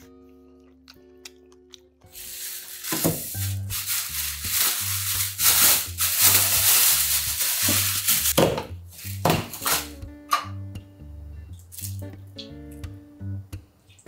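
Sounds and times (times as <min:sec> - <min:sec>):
background music with bass: 0:02.0 - 0:13.8
plastic bag rustling: 0:02.1 - 0:08.4.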